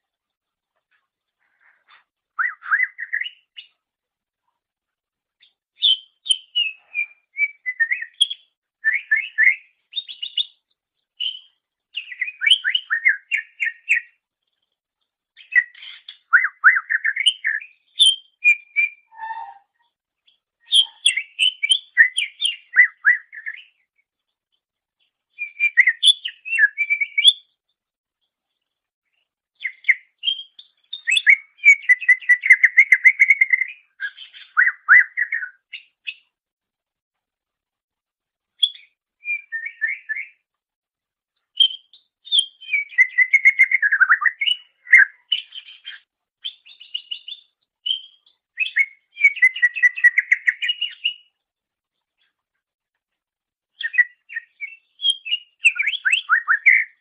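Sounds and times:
bird singing whistled trills: 0:02.3 - 0:03.7, 0:05.8 - 0:10.6, 0:11.2 - 0:14.2, 0:15.4 - 0:19.9, 0:20.6 - 0:23.8, 0:25.4 - 0:27.5, 0:29.6 - 0:36.2, 0:38.6 - 0:40.4, 0:41.6 - 0:51.4, 0:53.8 - 0:57.0.

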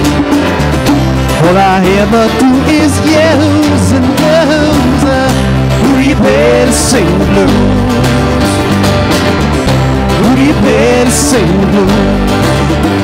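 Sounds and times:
acoustic guitars strumming: 0:00.0 - 0:13.0
bongos: 0:00.0 - 0:13.0
electric bass: 0:00.0 - 0:13.0
person singing lead vocal: 0:01.3 - 0:08.9, 0:10.0 - 0:12.6.

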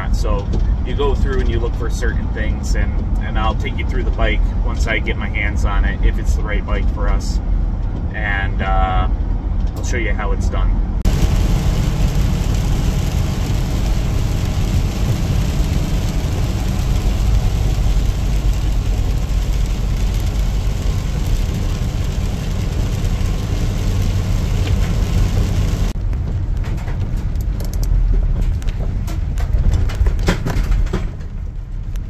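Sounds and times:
car cabin low rumble: 0:00.0 - 0:32.0
tyres hissing on wet pavement: 0:11.1 - 0:26.0.

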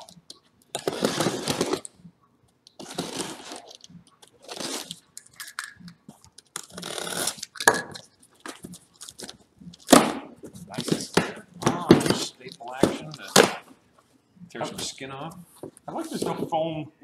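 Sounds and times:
box cutter slicing cardboard: 0:00.8 - 0:01.8, 0:02.8 - 0:03.6
sharp crack: 0:09.9 - 0:13.7.

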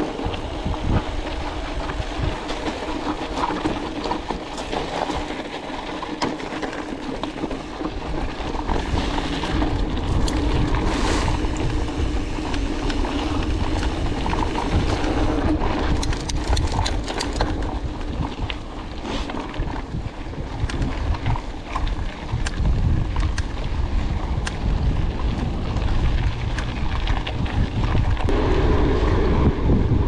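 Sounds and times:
wind buffeting microphone: 0:00.0 - 0:06.0, 0:07.4 - 0:30.0
bike tyres rolling on gravel trail: 0:00.0 - 0:28.8
sharp clicks and rattles: 0:12.4 - 0:18.6.

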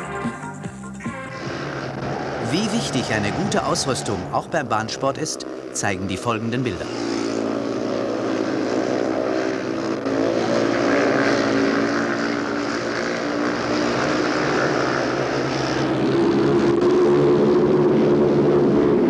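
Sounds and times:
racing motorcycle engines revving: 0:00.0 - 0:19.0.

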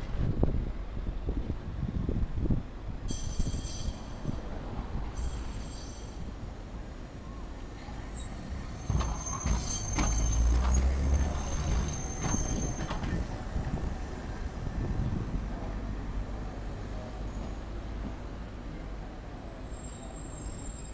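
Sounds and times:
street traffic hum: 0:00.0 - 0:20.9
tram rumbling past: 0:00.0 - 0:20.9
high-pitched wheel squeal: 0:08.1 - 0:13.2, 0:19.7 - 0:20.9
wheels clacking over track joints: 0:08.8 - 0:13.3.

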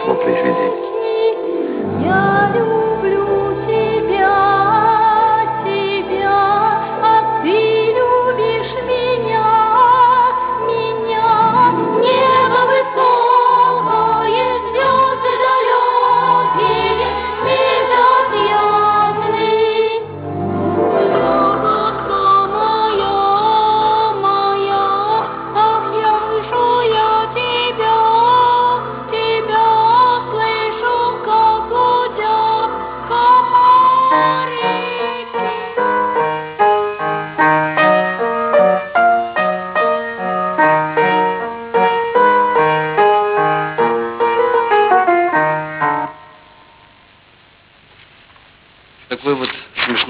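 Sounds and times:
sustained low accompaniment: 0:00.0 - 0:01.0
high voices singing: 0:00.0 - 0:20.3, 0:21.0 - 0:37.2
lively piano tune: 0:34.5 - 0:46.4.

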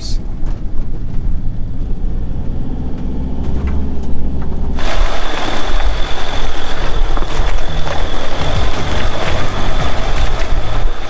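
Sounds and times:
van engine rumbling: 0:00.0 - 0:11.0
tyres crunching over rocky dirt: 0:02.9 - 0:11.0.

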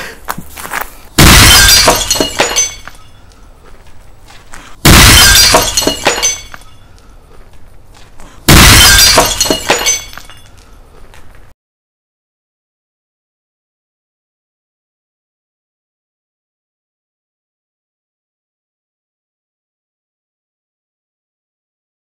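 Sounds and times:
shards clattering on paving: 0:00.3 - 0:07.0, 0:08.0 - 0:11.3.

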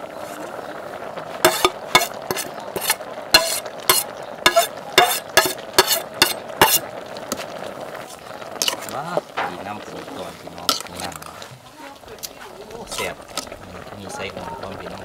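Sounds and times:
simmering pot hissing: 0:00.0 - 0:15.0
spoon clinking on enamel plate: 0:01.5 - 0:06.8.

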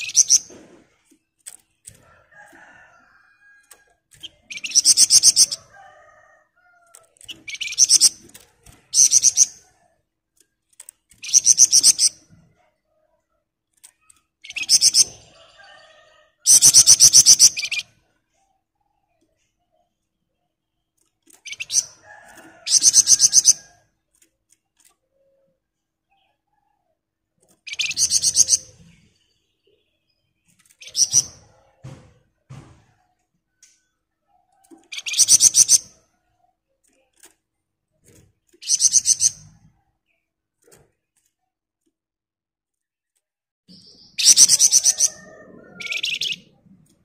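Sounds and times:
songbird rattling trill: 0:00.0 - 0:00.5, 0:03.6 - 0:05.8, 0:07.0 - 0:09.6, 0:10.8 - 0:12.2, 0:21.3 - 0:23.8, 0:27.6 - 0:28.9, 0:34.8 - 0:36.0, 0:38.5 - 0:39.6.

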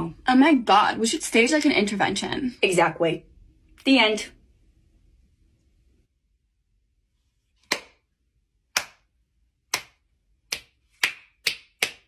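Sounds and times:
hand clapping: 0:08.8 - 0:09.0, 0:09.7 - 0:12.0.

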